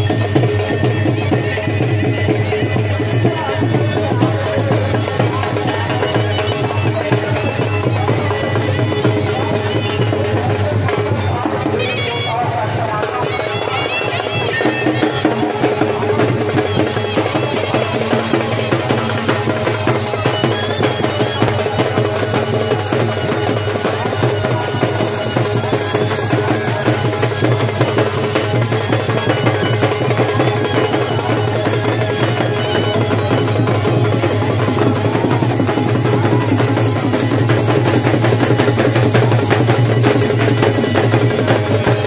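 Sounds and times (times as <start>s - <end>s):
folk drums beating: 0.0s - 42.0s
reed pipe playing: 14.7s - 42.0s.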